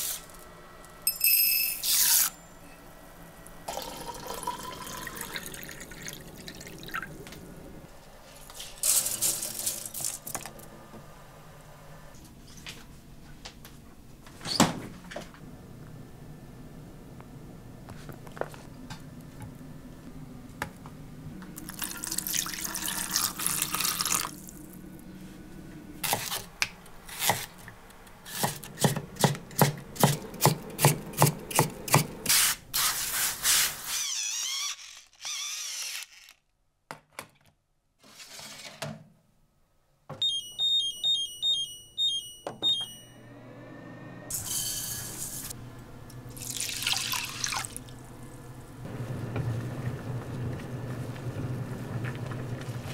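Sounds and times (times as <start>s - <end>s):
cooktop beeping tune: 40.2s - 43.5s
water in steel tray: 46.3s - 48.0s.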